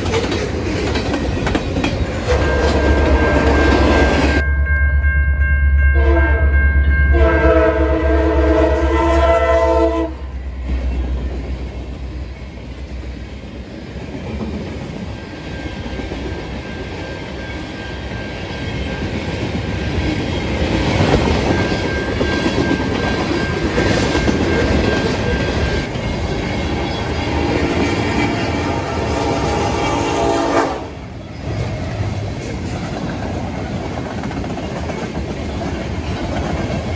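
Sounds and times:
wheels clicking over rail joints: 0.0s - 4.2s
freight train rolling past: 0.0s - 36.9s
locomotive air horn: 6.0s - 6.5s, 7.1s - 10.4s, 28.6s - 31.0s.

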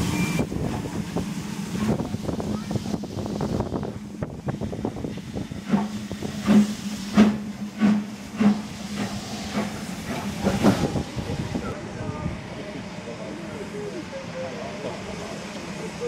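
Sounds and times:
steam hissing: 0.0s - 11.8s
steam locomotive chuffing: 0.0s - 16.0s.

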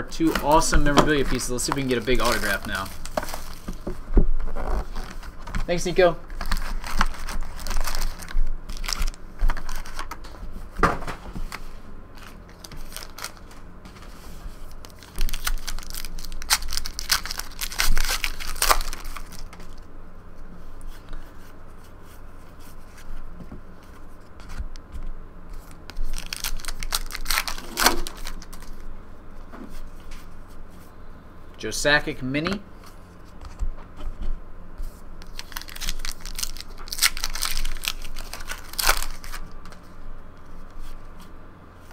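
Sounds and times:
wrappers tearing and crinkling: 0.1s - 3.8s, 4.4s - 10.2s, 12.2s - 13.7s, 14.6s - 19.9s, 25.6s - 28.9s, 35.2s - 39.8s
cards rustling: 0.1s - 10.4s, 11.3s - 19.9s, 20.8s - 28.9s, 34.8s - 41.3s.

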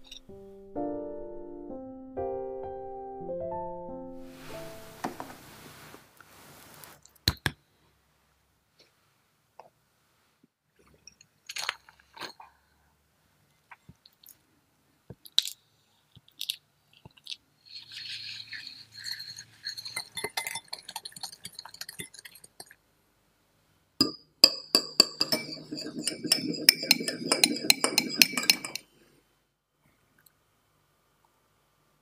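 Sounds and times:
whisk clinking against glass bowl: 17.7s - 22.8s, 24.0s - 28.8s.

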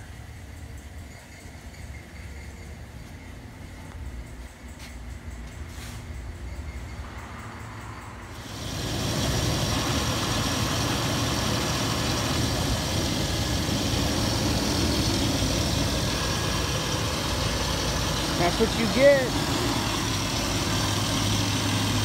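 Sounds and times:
truck engine idling: 8.2s - 22.0s.

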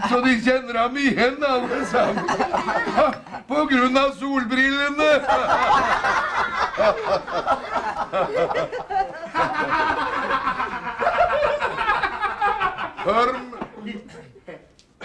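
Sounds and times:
people laughing heartily: 1.5s - 3.5s, 5.1s - 14.3s.

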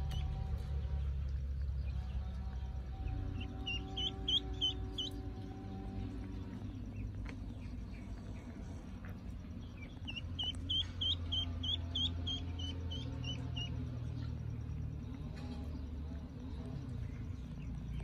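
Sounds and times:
steady low hum: 0.0s - 18.0s
duckling peeping: 1.9s - 5.4s, 6.0s - 14.4s.

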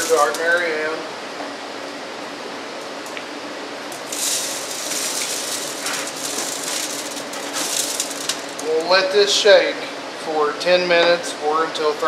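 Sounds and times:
steady background hiss: 0.0s - 12.0s
metal scraping and clatter: 4.0s - 8.7s.

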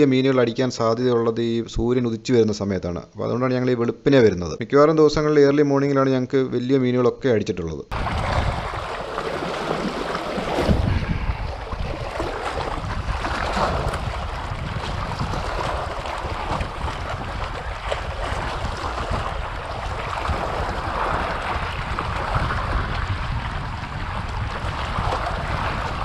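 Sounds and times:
sea waves washing against rocks: 7.9s - 26.0s
wind buffeting microphone: 7.9s - 26.0s.

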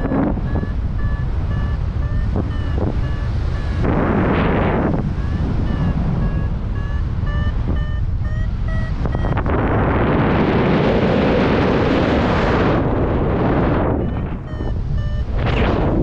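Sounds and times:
variometer beeping short tones: 0.0s - 9.5s, 14.0s - 15.6s
wind buffeting microphone: 0.0s - 16.0s.

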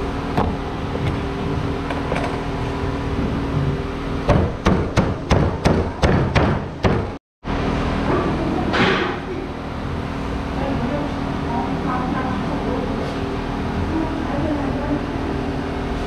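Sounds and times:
steady hum: 0.0s - 16.0s.

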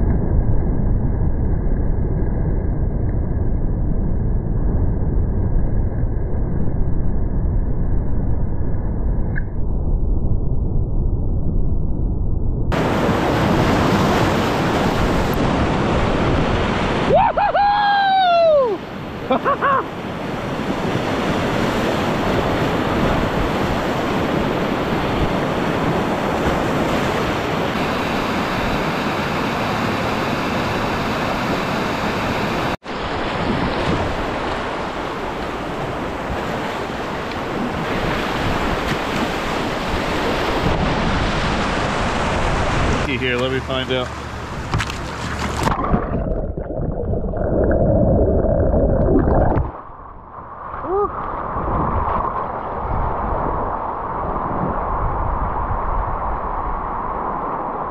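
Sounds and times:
wind buffeting microphone: 18.8s - 57.9s
rushing whitewater: 26.8s - 45.7s.

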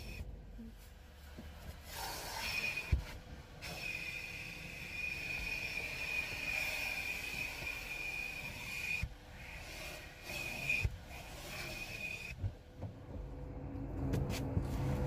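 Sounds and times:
vacuum running with whine: 3.7s - 10.9s.

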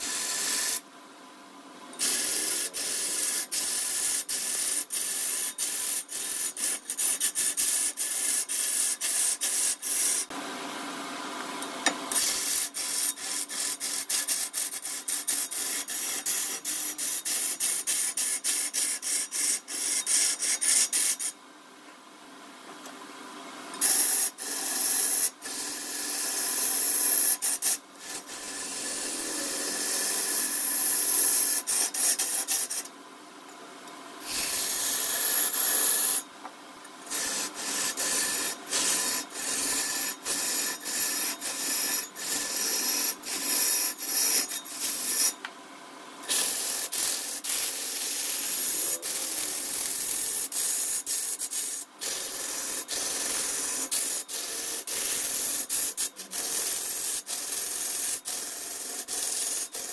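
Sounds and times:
faint steady hum: 0.0s - 59.9s
tool scraping turning wood: 23.8s - 32.9s, 34.2s - 36.2s, 37.0s - 45.4s, 46.3s - 59.9s.

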